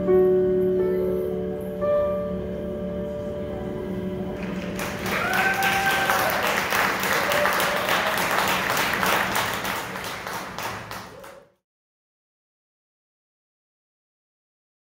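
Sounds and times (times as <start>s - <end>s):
piano chord: 0.0s - 7.2s
audience applauding: 4.4s - 11.6s.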